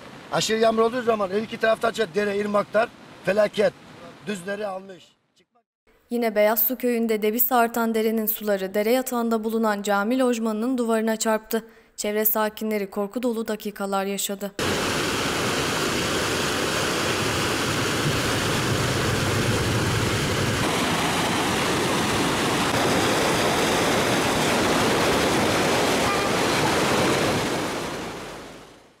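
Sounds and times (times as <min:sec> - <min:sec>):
flood stream rushing: 0:00.0 - 0:04.6, 0:14.6 - 0:29.0.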